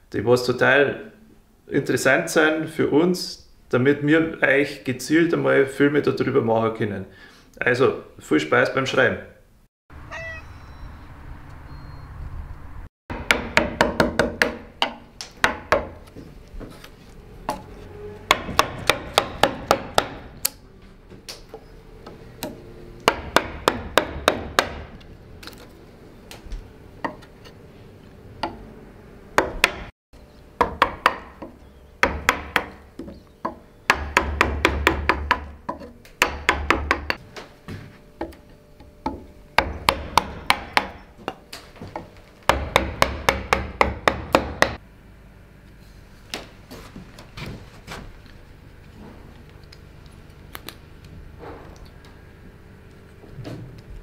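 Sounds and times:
wooden mallet striking gouge: 13.1s - 16.1s, 18.3s - 20.5s, 22.0s - 25.0s, 29.4s - 29.9s, 30.6s - 37.2s, 39.0s - 41.4s, 42.0s - 44.8s.

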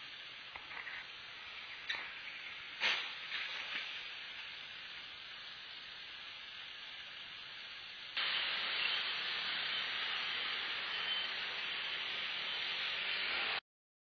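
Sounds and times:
motorcycle riding noise hiss: 0.0s - 13.6s.

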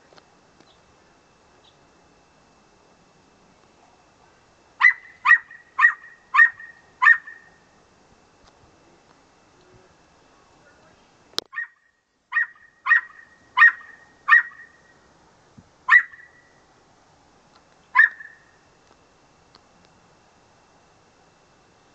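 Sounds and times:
parrot imitating dog bark: 4.8s - 7.5s, 11.5s - 14.8s, 15.9s - 16.4s, 18.0s - 18.4s.

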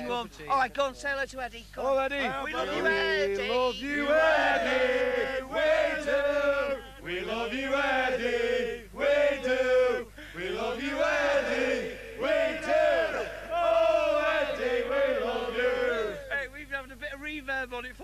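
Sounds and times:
men singing in unison: 2.6s - 16.3s.

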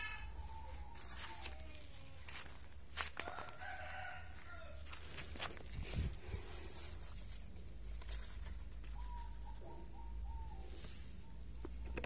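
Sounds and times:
faint rooster crowing: 0.0s - 5.3s.

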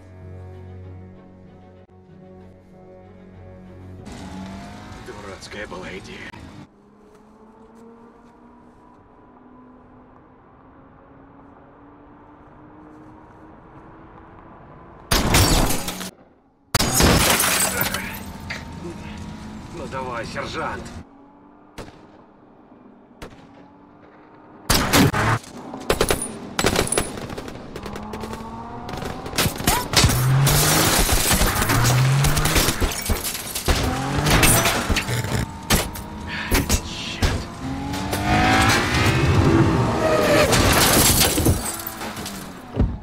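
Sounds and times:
vehicle sounds: 0.0s - 43.0s
gunshots and impacts: 15.1s - 16.1s, 16.8s - 18.1s, 21.7s - 22.2s, 23.2s - 38.9s.

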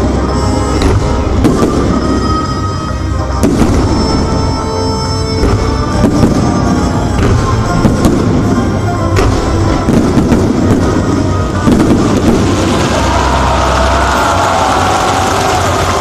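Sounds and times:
loud music playing: 0.0s - 16.0s.

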